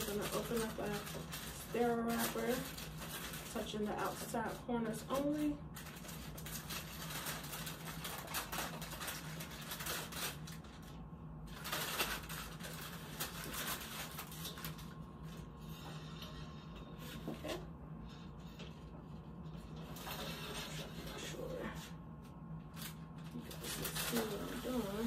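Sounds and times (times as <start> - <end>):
paper wrapper crinkling: 0.0 - 15.8, 22.6 - 25.0.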